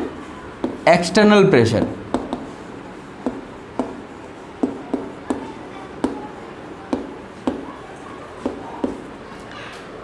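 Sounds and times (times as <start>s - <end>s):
chalk tapping on chalkboard: 0.0s - 0.9s, 1.8s - 2.6s, 3.2s - 6.2s, 6.9s - 7.7s, 8.4s - 9.1s.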